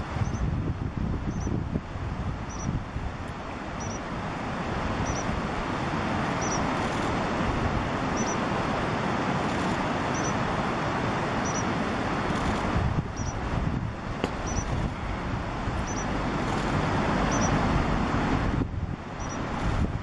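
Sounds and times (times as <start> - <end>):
wind buffeting microphone: 0.0 - 20.0
small bird chirps: 2.5 - 2.7, 3.8 - 4.0, 5.0 - 5.3, 6.4 - 6.6, 8.2 - 8.4, 10.2 - 10.4, 11.4 - 11.7, 13.2 - 13.4, 14.4 - 14.7, 15.8 - 16.1, 17.3 - 17.5, 19.2 - 19.4.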